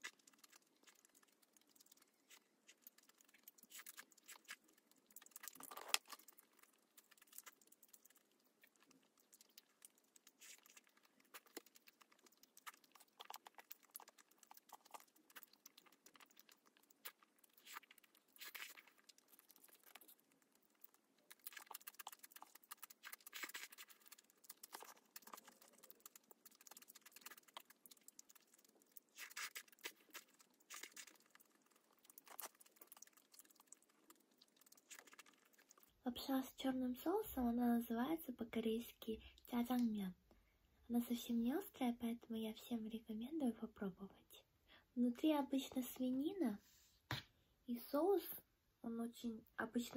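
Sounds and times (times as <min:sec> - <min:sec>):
person chewing food: 0:00.0 - 0:36.0
wet mouth clicks and smacks: 0:00.0 - 0:36.0.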